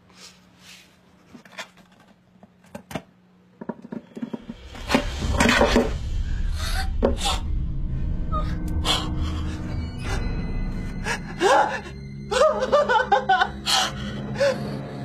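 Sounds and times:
low dramatic music: 0:04.4 - 0:15.0.

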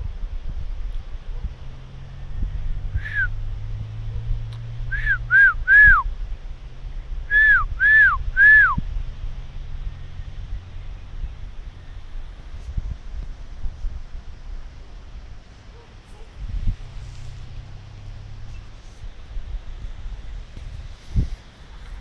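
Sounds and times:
person whistling to call dog: 0:03.0 - 0:03.3, 0:04.9 - 0:06.1, 0:07.3 - 0:08.8.

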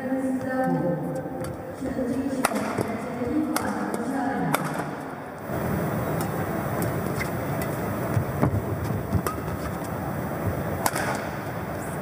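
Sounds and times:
racket striking shuttlecock: 0:01.4 - 0:05.2, 0:09.1 - 0:09.7, 0:10.8 - 0:11.4.

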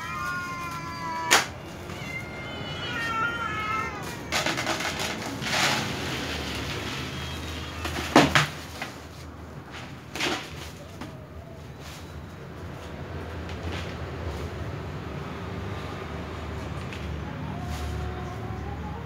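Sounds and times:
cat meowing: 0:00.0 - 0:05.6.

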